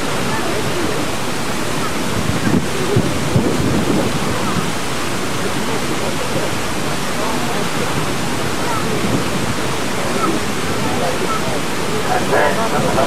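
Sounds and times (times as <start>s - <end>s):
water rushing: 0.0s - 13.0s
wind on microphone: 0.0s - 13.0s.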